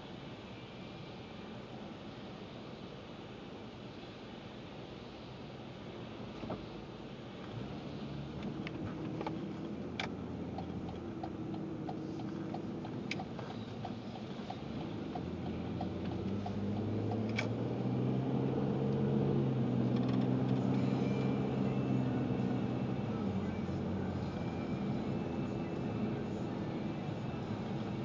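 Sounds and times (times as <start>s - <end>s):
car engine hum: 1.3s - 28.0s
turn signal clicking: 8.4s - 17.9s, 18.8s - 21.4s.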